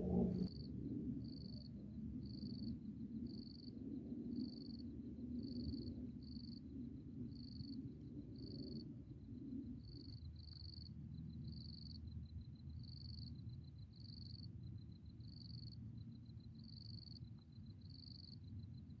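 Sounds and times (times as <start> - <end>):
low rumble: 0.0 - 0.6
crickets chirping: 0.0 - 19.0.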